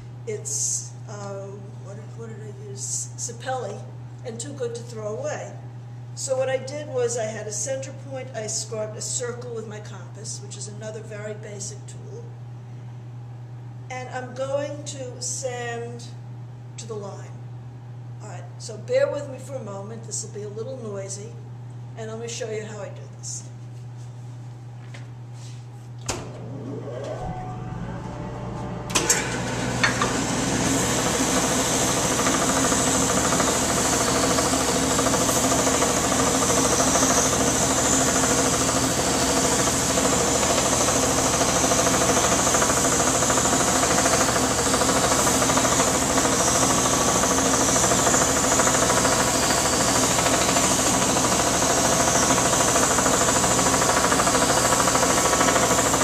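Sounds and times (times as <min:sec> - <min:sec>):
dust collection system running: 0:25.4 - 0:56.0
belt sander motor whining: 0:26.4 - 0:56.0.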